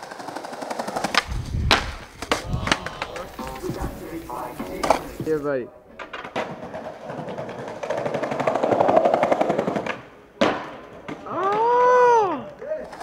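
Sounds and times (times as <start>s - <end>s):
skateboard cracking on ledge: 0.0s - 5.4s
skateboard wheels clacking on tiles: 0.0s - 5.4s, 6.0s - 13.0s.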